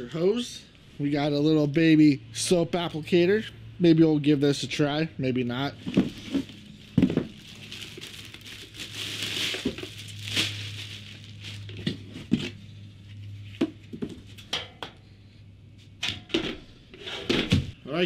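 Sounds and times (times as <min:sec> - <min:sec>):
knocks and thumps of handling: 0:05.8 - 0:07.4
plastic wrapping crinkling: 0:05.9 - 0:12.4.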